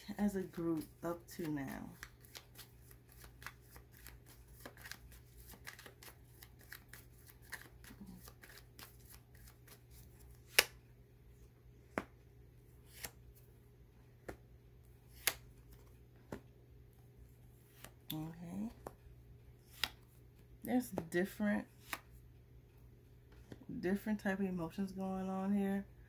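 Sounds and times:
cards being shuffled: 0:00.4 - 0:10.8, 0:12.8 - 0:13.4, 0:15.0 - 0:16.5, 0:19.6 - 0:20.1, 0:21.7 - 0:22.1
cards snapping down: 0:10.5 - 0:10.8, 0:15.1 - 0:15.5.

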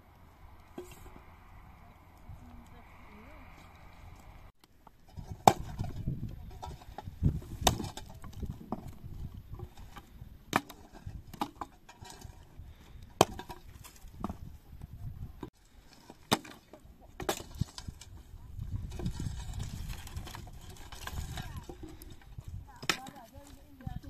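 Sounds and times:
axe chopping wood: 0:05.3 - 0:05.9, 0:07.4 - 0:08.1, 0:10.5 - 0:11.7, 0:13.2 - 0:13.6, 0:16.2 - 0:17.8
wood knocking and cracking: 0:06.6 - 0:09.1.

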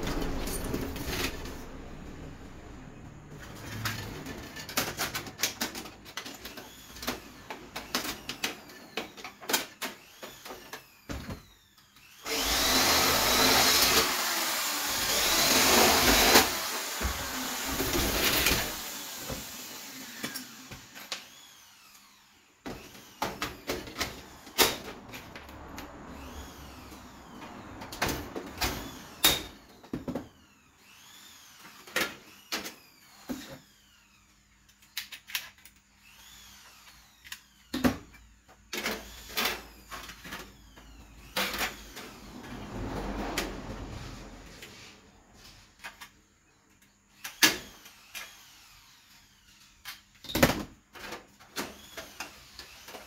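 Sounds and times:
clicks and knocks of metal parts: 0:03.4 - 0:10.8, 0:34.6 - 0:35.8
cordless drill running: 0:06.5 - 0:08.9, 0:09.9 - 0:24.6, 0:26.2 - 0:27.4, 0:30.3 - 0:34.4, 0:36.0 - 0:37.7, 0:38.9 - 0:40.0, 0:47.2 - 0:49.7, 0:51.6 - 0:53.0.

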